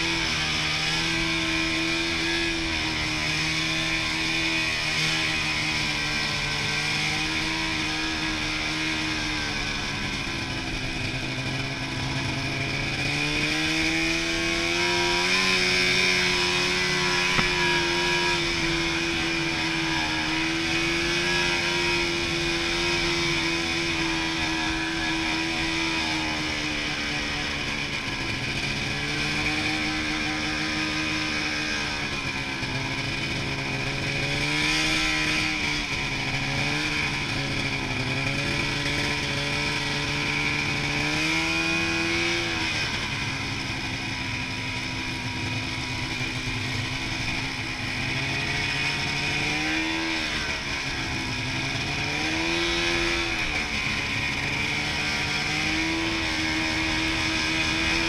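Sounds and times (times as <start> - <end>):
snowmobile engine running: 0.0 - 58.0.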